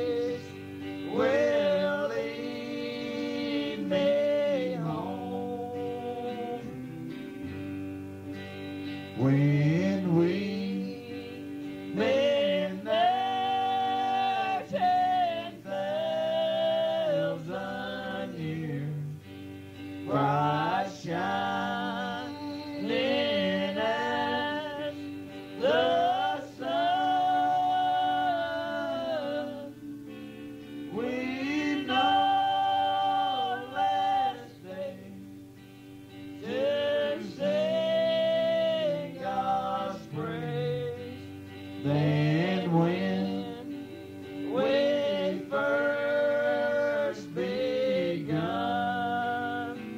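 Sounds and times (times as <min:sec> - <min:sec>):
group singing a slow hymn: 0:00.0 - 0:49.9
guitar accompaniment: 0:00.0 - 0:49.9.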